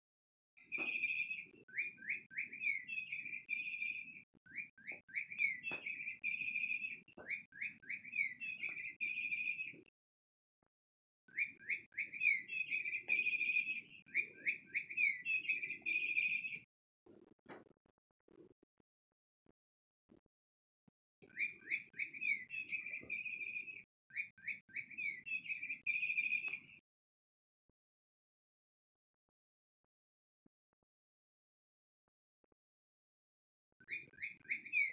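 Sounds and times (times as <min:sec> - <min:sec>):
electronic toy bird chirps: 0:00.6 - 0:09.8, 0:11.3 - 0:16.7, 0:21.3 - 0:26.7, 0:33.8 - 0:34.9.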